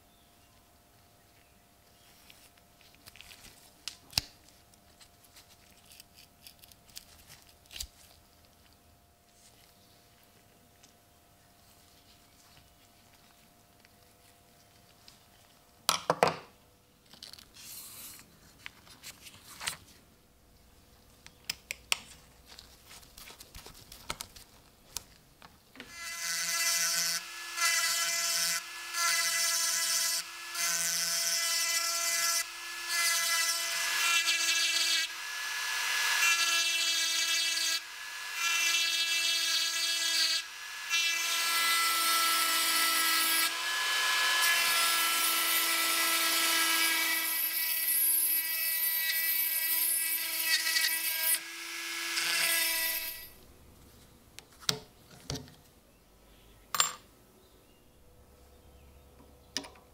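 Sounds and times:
rotary tool grinding metal: 0:25.8 - 0:53.3.

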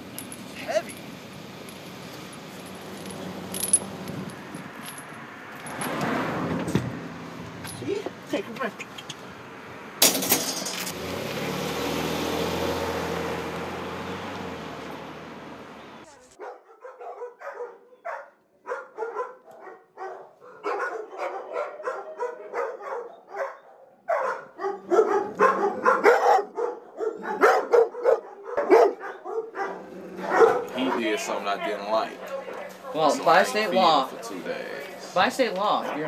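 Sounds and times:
van engine driving off: 0:10.9 - 0:16.1
dog barking: 0:16.4 - 0:33.1, 0:35.8 - 0:36.0.

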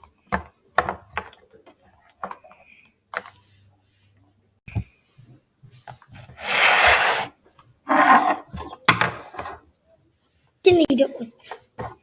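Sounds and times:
sleeve scraping tabletop: 0:06.2 - 0:09.6.

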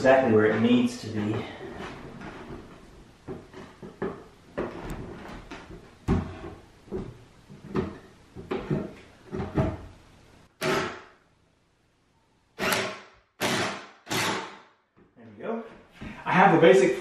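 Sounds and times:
cordless impact driver: 0:12.6 - 0:14.6.

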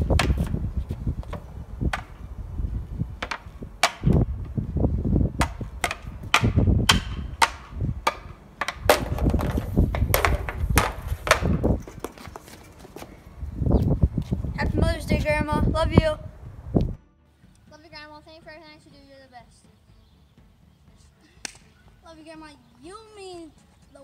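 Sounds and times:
hockey stick clacking puck: 0:03.2 - 0:04.2, 0:05.4 - 0:13.0.

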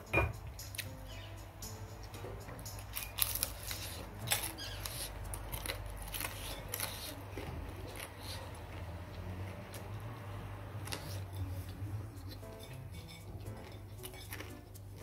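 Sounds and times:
mouth smacks and chewing: 0:10.8 - 0:15.0.

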